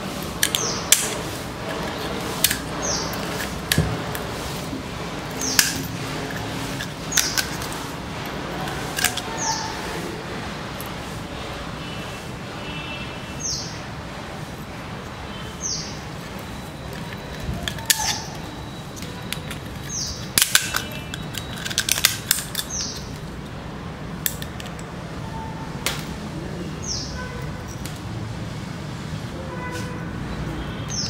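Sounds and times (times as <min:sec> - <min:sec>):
bird chirping: 0:02.7 - 0:03.4, 0:15.3 - 0:17.2, 0:17.8 - 0:21.5, 0:22.6 - 0:23.2, 0:30.6 - 0:31.0
seashell cracking under pliers: 0:24.3 - 0:24.9.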